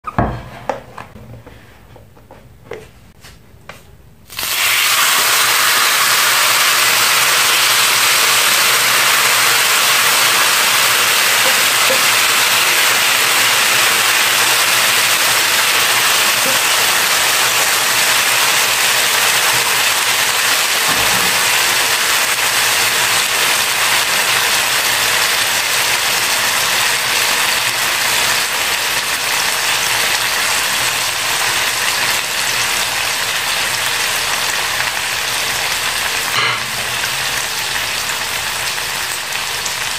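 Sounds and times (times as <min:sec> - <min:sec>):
food sizzling on a hot plate: 0:04.3 - 0:39.9.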